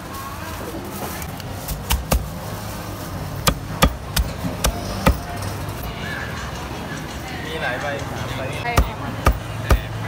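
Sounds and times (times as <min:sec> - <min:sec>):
cleaver chopping on wooden block: 0:03.5 - 0:05.2, 0:08.7 - 0:09.9.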